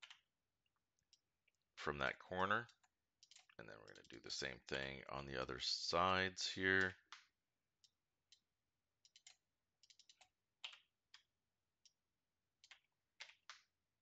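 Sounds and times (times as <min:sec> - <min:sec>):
mouse and keyboard clicks: 0:09.1 - 0:11.2.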